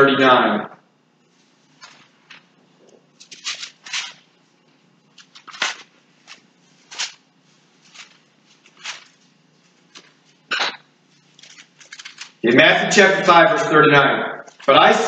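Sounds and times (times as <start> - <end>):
low steady hum: 0.0 - 15.0
thin pages rustling: 1.7 - 4.2, 5.1 - 10.4, 11.2 - 12.4.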